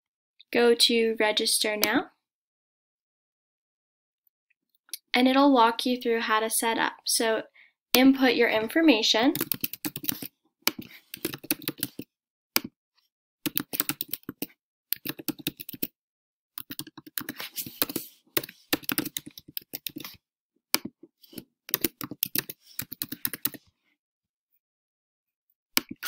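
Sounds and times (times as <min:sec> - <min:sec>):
typing on computer keyboard: 0:09.3 - 0:12.1, 0:13.5 - 0:15.9, 0:16.6 - 0:20.2, 0:20.8 - 0:23.6.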